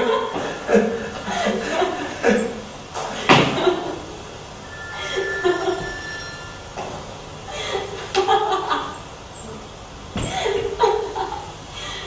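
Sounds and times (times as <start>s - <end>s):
bell-like ringing: 4.6s - 7.4s.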